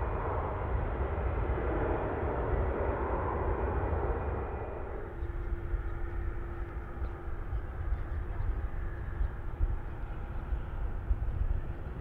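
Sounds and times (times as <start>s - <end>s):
distant jet engines running: 0.0s - 12.0s
wind rumble on microphone: 0.0s - 12.0s
faint steady hum: 4.2s - 12.0s.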